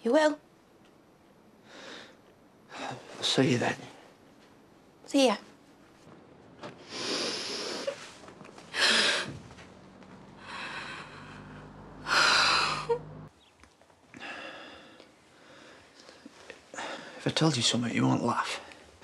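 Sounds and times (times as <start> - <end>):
woman breathing heavily: 6.8 - 9.5, 10.3 - 13.3, 14.2 - 17.2.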